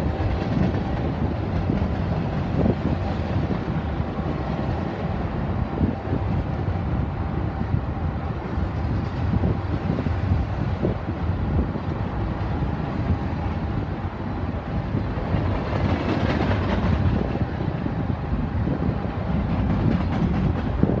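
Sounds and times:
train wheels rumbling on rail: 0:00.0 - 0:21.0.

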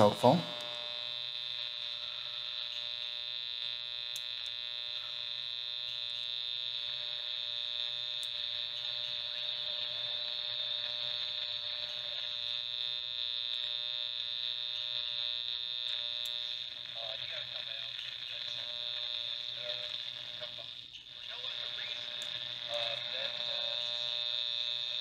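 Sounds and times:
high whine: 0:00.0 - 0:06.3
radio speaker buzzing hum: 0:00.0 - 0:25.0.

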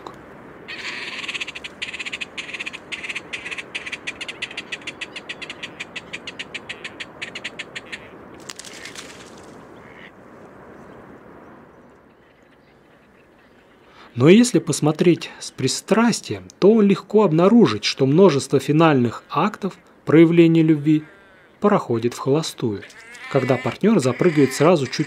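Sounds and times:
grebes rattling calls: 0:00.7 - 0:10.1, 0:18.2 - 0:25.0.

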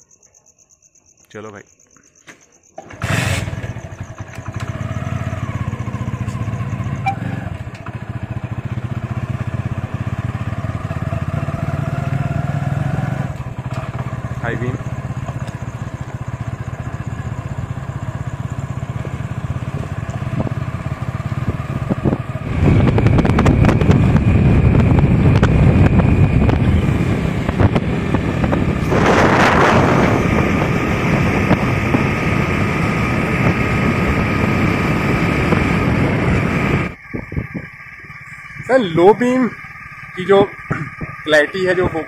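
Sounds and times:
motorcycle engine running: 0:02.8 - 0:42.0
wind noise on microphone: 0:18.8 - 0:42.0.

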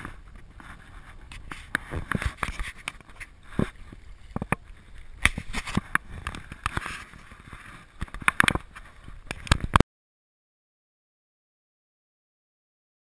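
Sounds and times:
water: 0:00.0 - 0:09.8
wind: 0:00.0 - 0:09.8.

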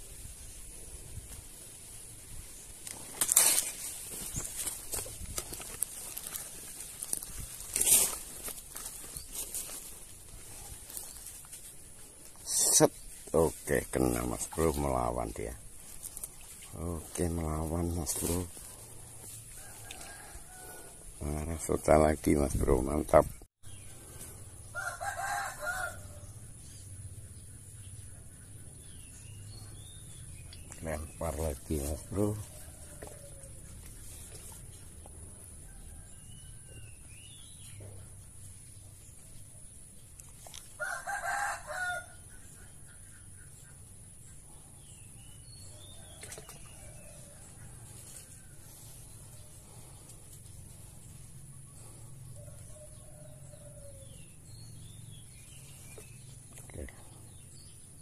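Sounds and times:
outdoor background: 0:00.0 - 0:58.0
rooster crowing: 0:19.6 - 0:21.0, 0:24.7 - 0:26.2, 0:40.8 - 0:42.2.

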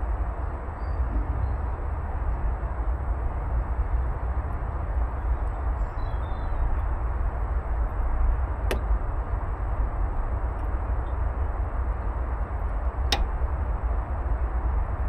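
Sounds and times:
heat pump running: 0:06.7 - 0:15.0
sharp click: 0:13.1 - 0:13.3.

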